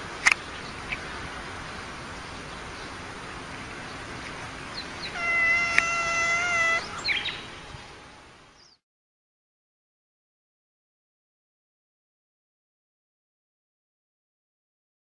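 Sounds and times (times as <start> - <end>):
steady background hiss: 0.0 - 8.8
cat yowling: 5.0 - 7.1
short higher cat cries: 5.1 - 7.2.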